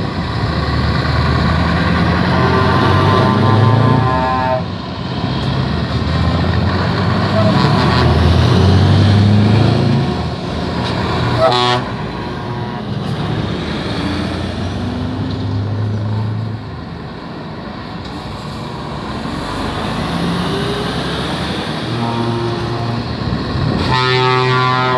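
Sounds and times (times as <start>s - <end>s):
truck diesel engines pulling away: 0.0s - 24.9s
truck horn blast: 1.8s - 4.8s, 6.9s - 8.8s, 11.3s - 13.2s, 21.8s - 23.2s, 23.8s - 24.9s.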